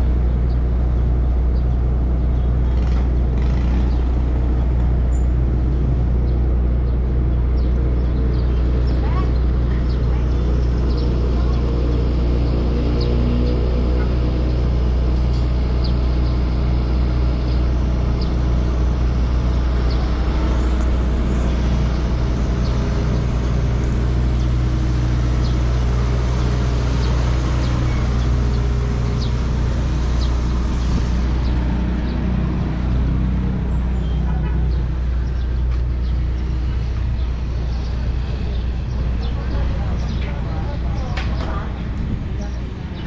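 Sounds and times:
street traffic noise: 0.0 - 43.0
vehicle engine humming: 0.0 - 43.0.

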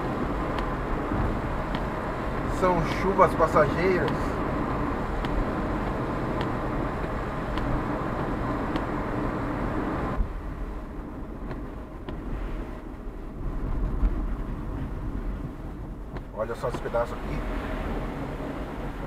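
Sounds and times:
tyre and road noise: 0.0 - 19.0.

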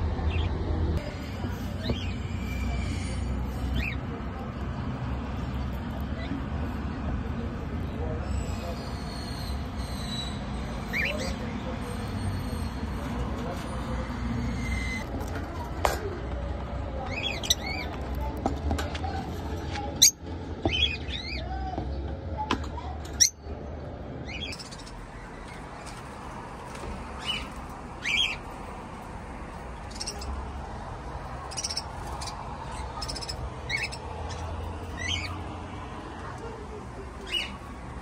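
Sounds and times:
parrots chirping and squawking: 0.3 - 4.1, 8.2 - 12.9, 14.1 - 15.0, 24.2 - 26.3, 27.0 - 29.1, 29.7 - 35.6, 37.2 - 37.7.

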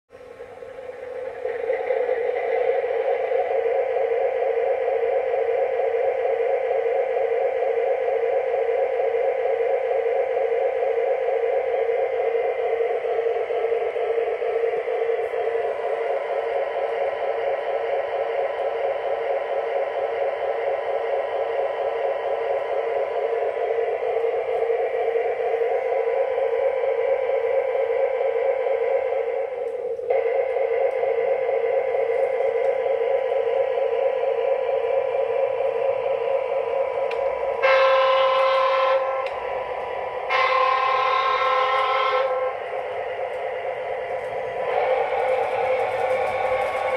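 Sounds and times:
model train horn blasts: 37.5 - 39.5, 40.2 - 42.8.

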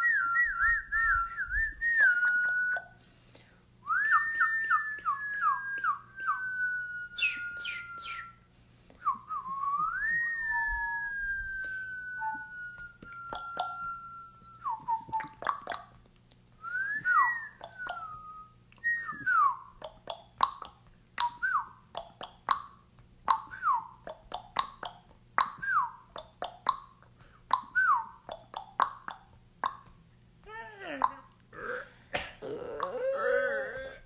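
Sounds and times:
whistled bird-like calls: 7.1 - 8.4.

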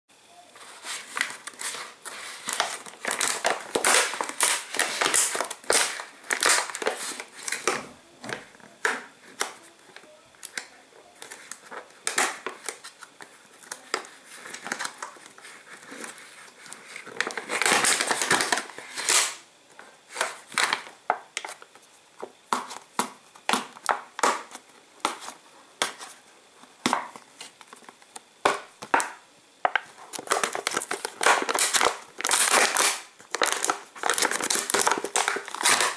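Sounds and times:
plastic food tray crinkling: 0.6 - 35.9.

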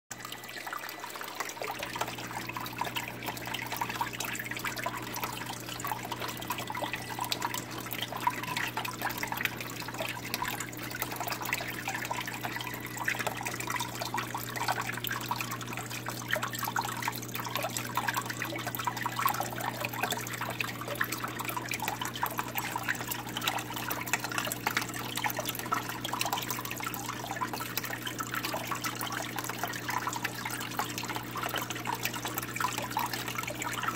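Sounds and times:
water trickling and dripping: 0.1 - 33.9.

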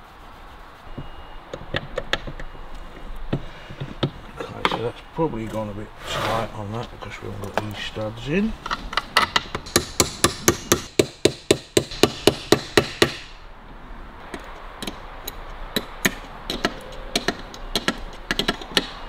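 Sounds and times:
sharp metal clicks of hand tool: 14.3 - 19.0.

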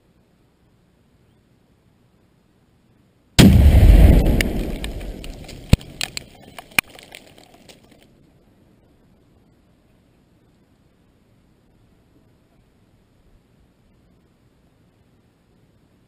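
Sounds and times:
explosion blast and rumble: 3.4 - 6.2
sharp cracks: 3.4 - 8.0.

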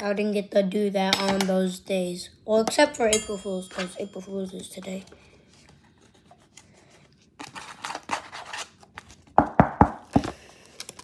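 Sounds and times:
kitchen utensils scraping: 2.7 - 5.1.

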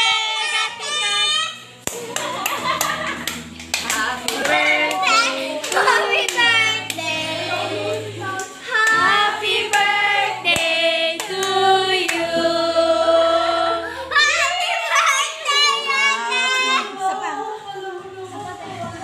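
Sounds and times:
instrumental music: 0.0 - 13.9
sharp claps: 1.8 - 6.5
voices singing: 3.8 - 19.0.

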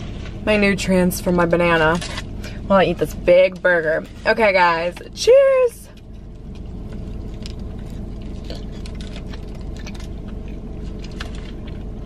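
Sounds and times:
steady low hum: 0.0 - 12.0
wet chewing: 5.9 - 12.0.

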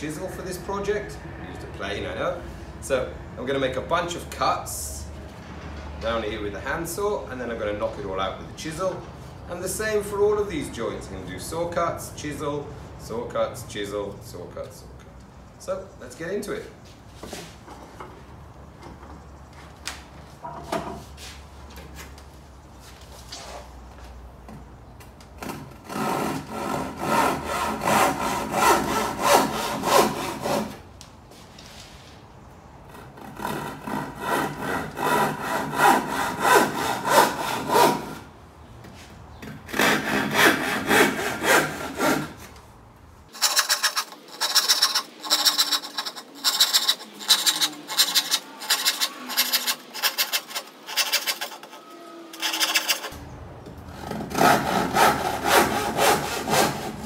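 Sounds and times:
handsaw cutting wood: 25.5 - 30.8, 33.2 - 38.2, 39.7 - 42.4, 43.3 - 53.2, 53.9 - 57.0.

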